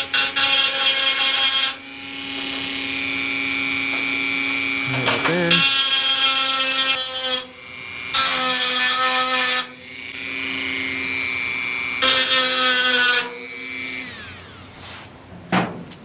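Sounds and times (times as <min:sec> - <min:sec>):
rotary tool cutting steel: 0:00.0 - 0:14.8
rotary tool whine: 0:01.1 - 0:15.1
sharp clunk: 0:15.5 - 0:16.0.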